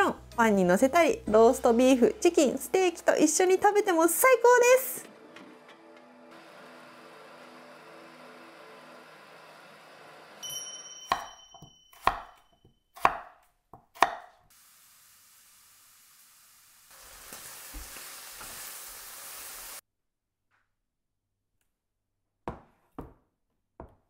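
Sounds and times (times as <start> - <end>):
knife chopping on cutting board: 11.1 - 12.4, 13.0 - 14.4.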